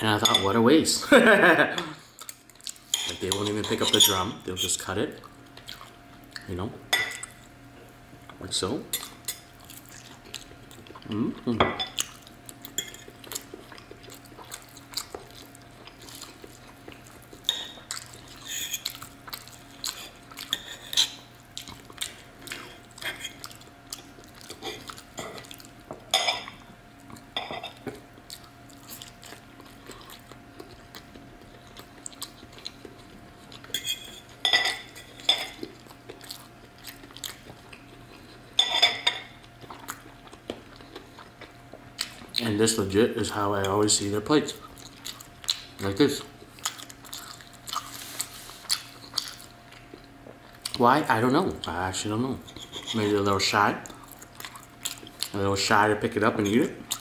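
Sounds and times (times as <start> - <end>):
cutlery scraping ceramic plate: 33.7 - 35.6.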